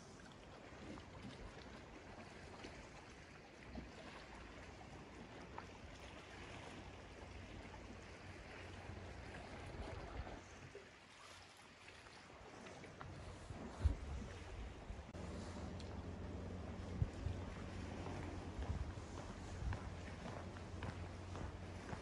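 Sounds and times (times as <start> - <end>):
low rumble: 13.0 - 22.0.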